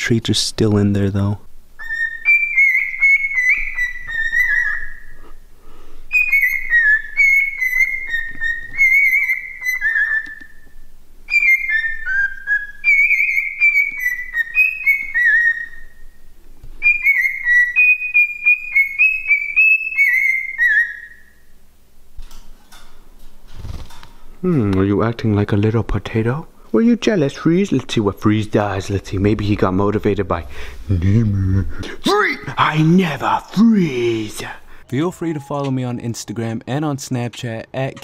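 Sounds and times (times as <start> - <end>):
cockatiel whistling: 1.8 - 5.4, 6.1 - 16.2, 16.8 - 21.4.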